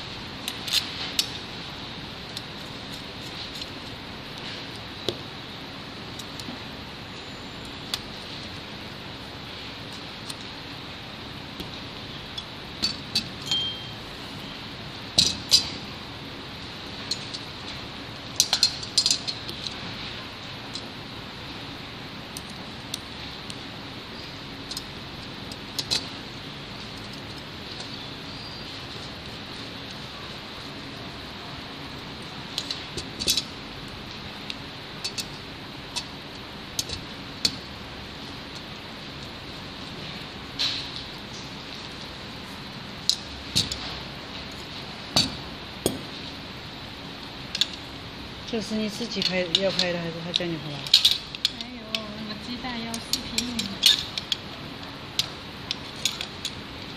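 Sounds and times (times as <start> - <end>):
steady low hiss: 0.0 - 56.9
metal parts clicking on brackets: 0.4 - 1.5, 2.3 - 4.9, 11.6 - 14.0, 15.1 - 15.9, 16.8 - 21.0, 24.6 - 31.0, 31.9 - 39.4, 43.0 - 46.5, 47.2 - 56.9
metal parts clinking: 12.3 - 14.0, 17.0 - 17.5, 18.3 - 19.8, 32.5 - 33.8, 35.0 - 37.7, 49.0 - 56.9.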